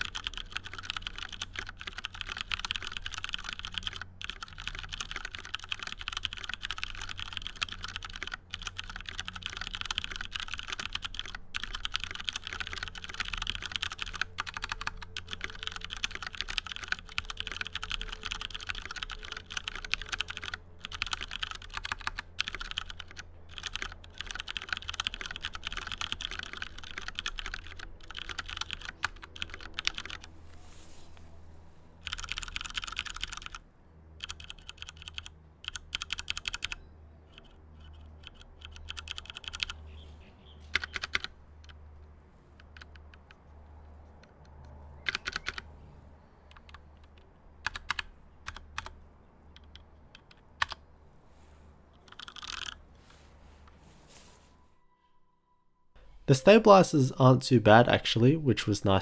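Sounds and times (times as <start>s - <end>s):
mechanical keyboard typing: 0.0s - 30.3s, 32.0s - 33.6s, 34.2s - 39.8s, 40.7s - 41.8s, 42.5s - 43.4s, 44.0s - 45.6s, 46.5s - 50.9s, 52.0s - 52.8s.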